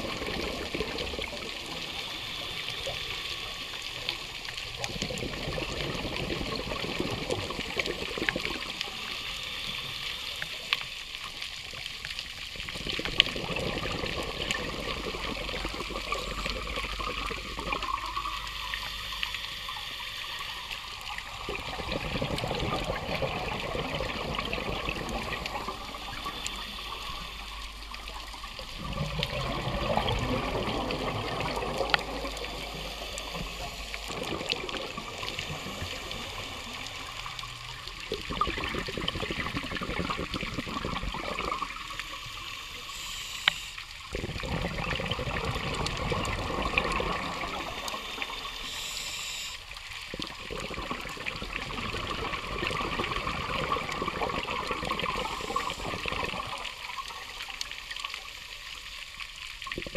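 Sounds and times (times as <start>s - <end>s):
diver breathing underwater: 13.2s - 56.8s.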